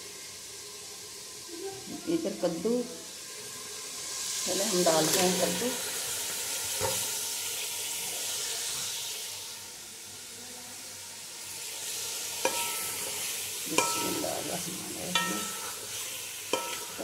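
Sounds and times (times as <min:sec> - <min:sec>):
vegetables sizzling in hot oil: 0:00.0 - 0:17.0
metal spoon clinking on pot: 0:12.4 - 0:13.0, 0:13.7 - 0:14.2, 0:15.1 - 0:15.8, 0:16.5 - 0:17.0.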